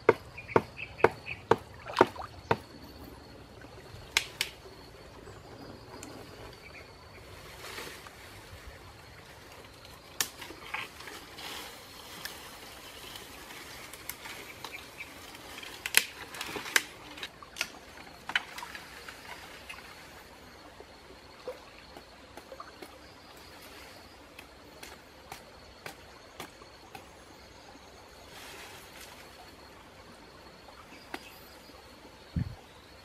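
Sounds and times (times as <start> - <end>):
leaves rustling: 5.7 - 20.4, 28.2 - 29.7
twigs and branches cracking: 10.1 - 11.4, 13.1 - 19.3.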